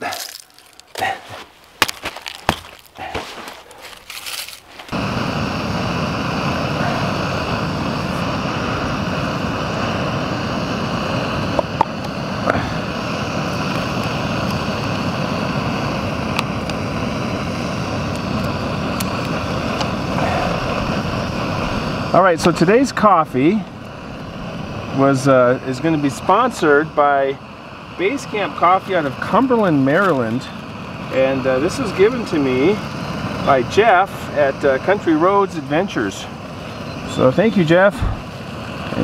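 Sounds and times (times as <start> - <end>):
boot crunching on gravel: 0.0 - 5.0
gas stove burner roaring: 2.6 - 39.0.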